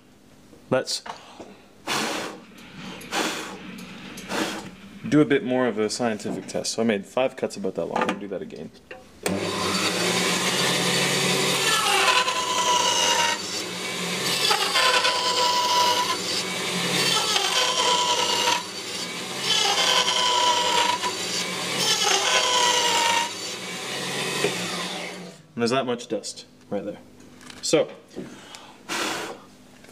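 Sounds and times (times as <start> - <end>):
bandsaw cutting wood whine: 9.2 - 25.4
bandsaw motor running: 9.3 - 25.4.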